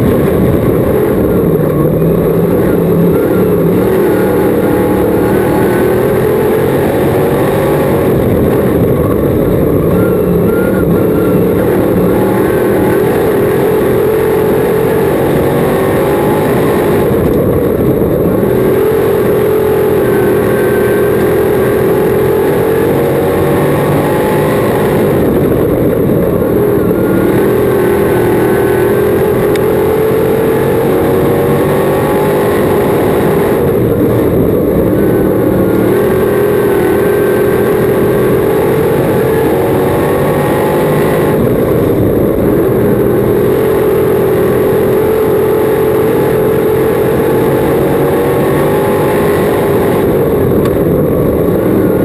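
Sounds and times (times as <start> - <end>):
race car engine at speed: 0.0 - 52.0.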